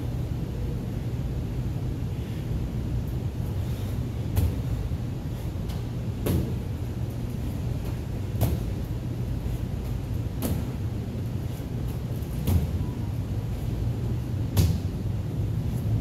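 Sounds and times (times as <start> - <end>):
steady low hum: 0.0 - 16.0
medicine ball thudding against wall: 5.7 - 6.7, 7.8 - 8.8, 10.3 - 10.8, 12.3 - 12.9, 14.5 - 14.9.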